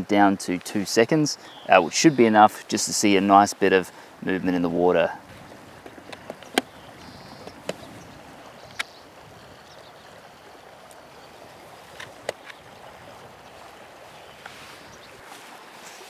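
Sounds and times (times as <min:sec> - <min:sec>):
flowing river water: 0:00.0 - 0:16.0
sharp clicks of camera handling: 0:05.8 - 0:06.7.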